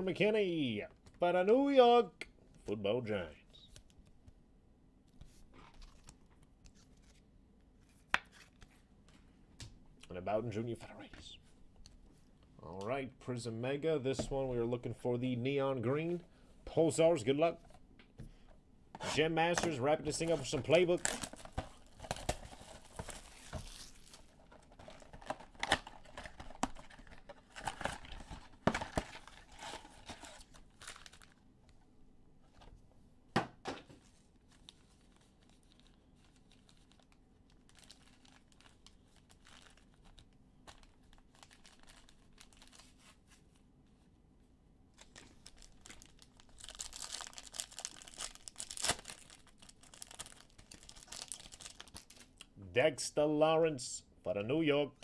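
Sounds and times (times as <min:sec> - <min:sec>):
foil wrappers crinkling: 0:20.1 - 0:31.4, 0:34.4 - 0:43.2, 0:45.0 - 0:52.3.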